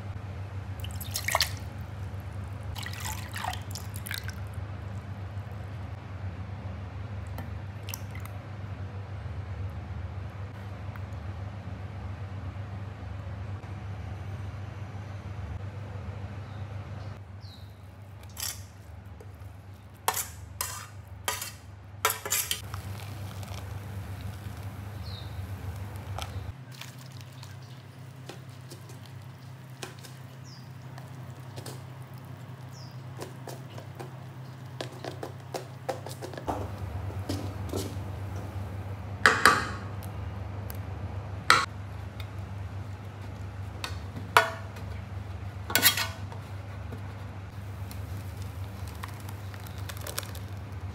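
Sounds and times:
low steady hum: 0.0 - 50.9
utensil scraping a dish: 20.1 - 22.6.

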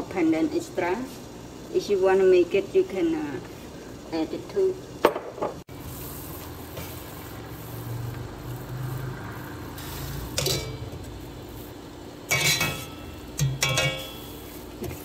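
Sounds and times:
water boiling in a pot: 0.0 - 15.0
wire skimmer scraping a pot: 5.8 - 15.0.

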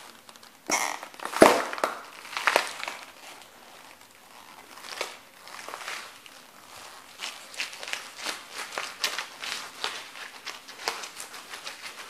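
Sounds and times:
pepper cracking under a boot: 0.0 - 3.2.

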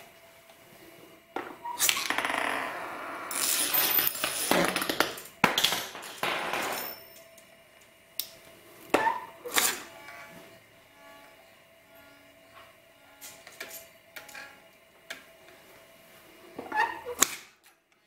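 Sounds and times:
metal spinning top rattling on glass: 3.3 - 7.0.

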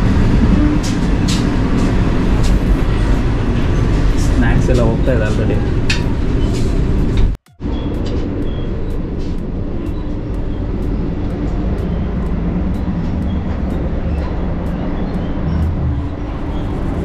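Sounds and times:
train wheels rumbling: 0.0 - 17.0.

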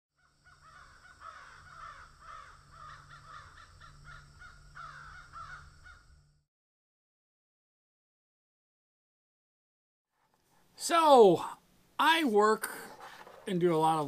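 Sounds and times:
crows cawing: 0.2 - 6.3.

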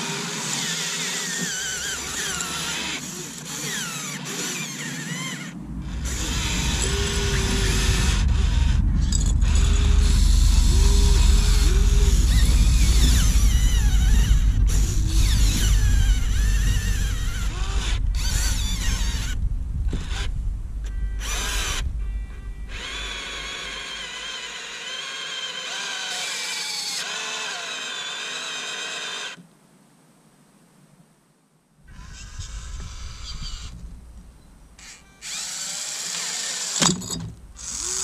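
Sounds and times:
electric motors whining: 0.0 - 29.4, 31.9 - 33.9, 34.8 - 38.0
heavy low rumble: 4.7 - 24.3, 31.8 - 35.5.

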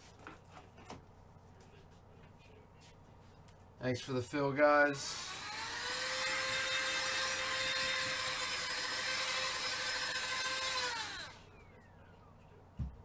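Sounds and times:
small electric motor whining: 5.0 - 11.9.

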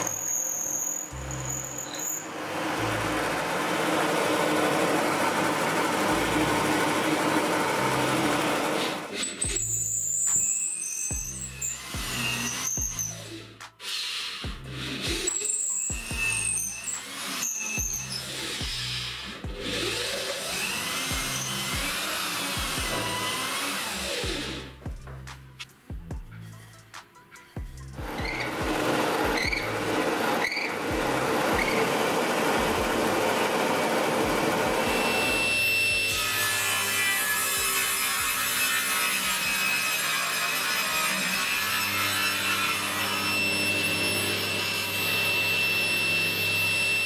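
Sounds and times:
drill press and vacuum running: 1.7 - 9.7, 14.9 - 24.7, 28.0 - 36.6, 42.7 - 47.0
background music with beat: 11.1 - 12.2, 12.8 - 16.5, 18.6 - 19.9, 21.1 - 22.0, 22.6 - 23.2, 24.2 - 29.9, 30.9 - 33.3.

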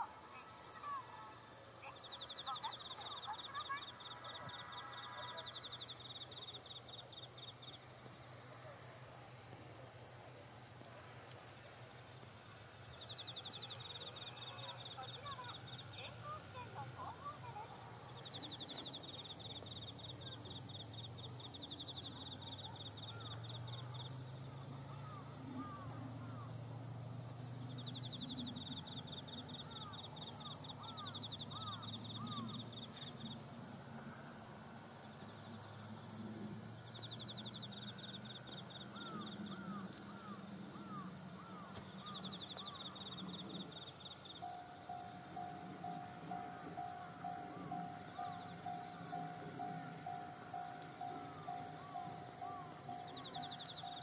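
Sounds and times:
insect trilling: 0.0 - 8.2, 12.6 - 54.0
birds chirping: 0.0 - 26.6, 27.4 - 34.3, 35.0 - 54.0
distant electric train rumble: 0.0 - 54.0.

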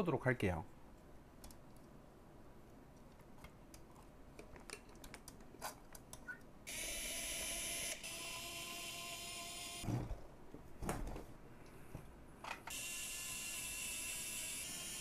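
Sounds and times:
electric screwdriver whining: 6.7 - 9.9, 12.7 - 15.0.

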